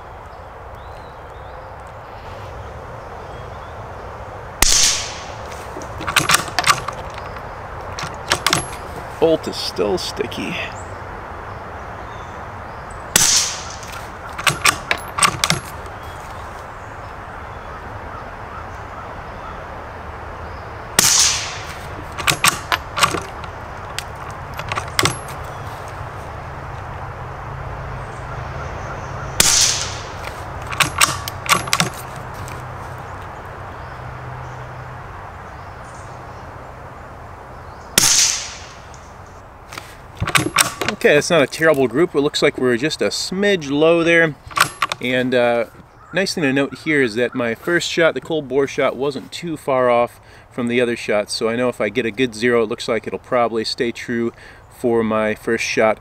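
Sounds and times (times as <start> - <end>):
rifle shots: 4.6 - 7.0, 13.2 - 15.7, 21.0 - 23.4, 29.4 - 32.0, 38.0 - 39.0
rifle bolt clicking: 4.6 - 8.9, 13.2 - 15.9, 21.0 - 25.6, 29.4 - 32.6, 39.8 - 41.0, 44.5 - 45.0.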